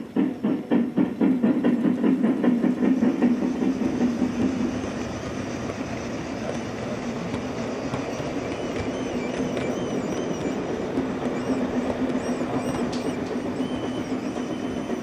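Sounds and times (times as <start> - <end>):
model train rolling rumble: 0.0 - 15.0.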